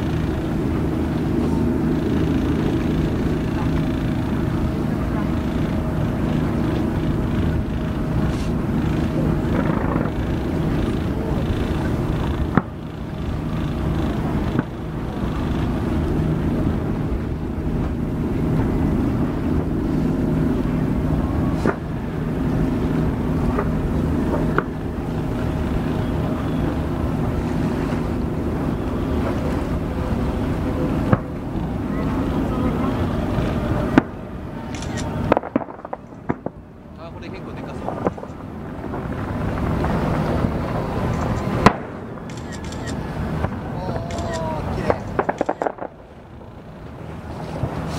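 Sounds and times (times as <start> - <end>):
fireworks cracking: 0.0 - 18.8, 21.5 - 47.9
boat engine droning: 0.0 - 47.9.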